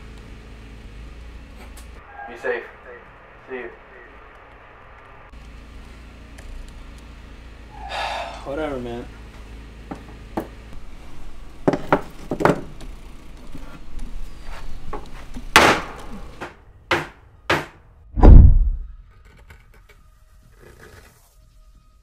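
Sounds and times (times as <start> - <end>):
heavy deep thud: 18.2 - 19.0.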